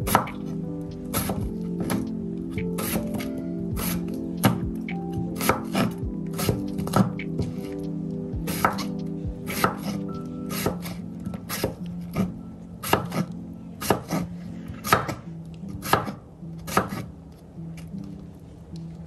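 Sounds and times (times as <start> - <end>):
knife chopping on wooden board: 8.5 - 8.9.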